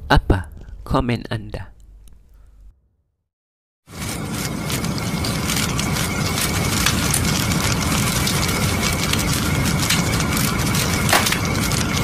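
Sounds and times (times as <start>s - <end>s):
fire crackling and rumbling: 3.9s - 12.0s
sharp crack of fire: 3.9s - 12.0s.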